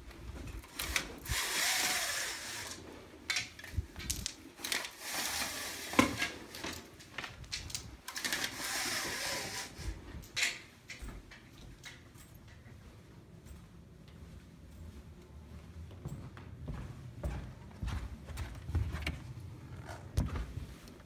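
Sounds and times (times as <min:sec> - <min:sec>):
window blinds rattling: 0:00.6 - 0:07.0, 0:07.6 - 0:10.6.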